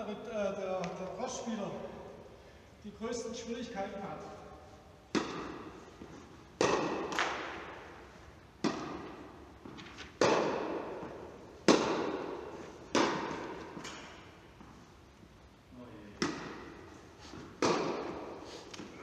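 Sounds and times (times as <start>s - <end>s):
tennis ball struck and bouncing: 5.1s - 8.0s, 8.6s - 14.7s, 16.2s - 18.9s.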